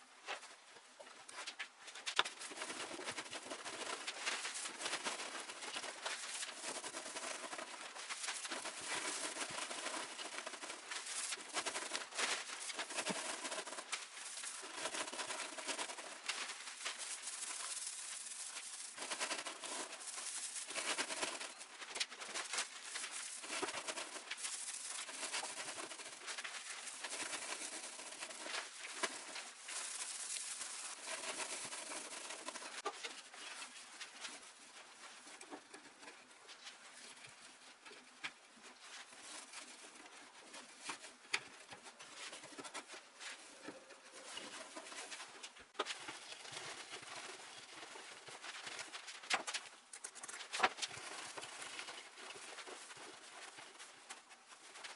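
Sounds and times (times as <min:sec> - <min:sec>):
dry stuffing rustling and crackling: 0:02.3 - 0:35.8.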